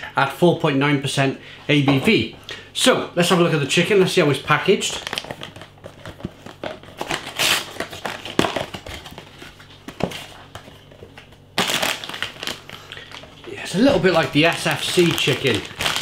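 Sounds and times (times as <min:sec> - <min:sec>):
plastic bag rustling: 0:11.6 - 0:16.0.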